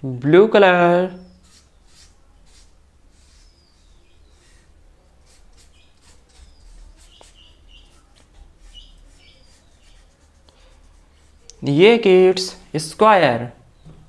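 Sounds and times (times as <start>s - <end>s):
paintbrush strokes on paper: 1.2s - 12.0s.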